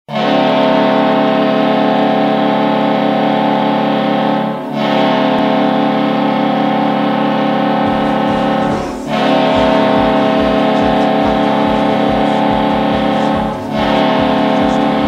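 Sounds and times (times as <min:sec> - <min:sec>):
goal horn blasts: 0:00.1 - 0:15.0
low thumping beat: 0:07.8 - 0:15.0.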